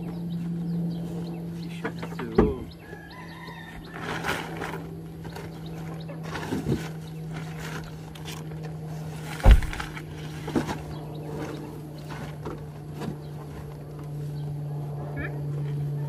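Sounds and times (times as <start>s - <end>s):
steady low hum: 0.0s - 16.0s
deep thump: 9.4s - 9.9s.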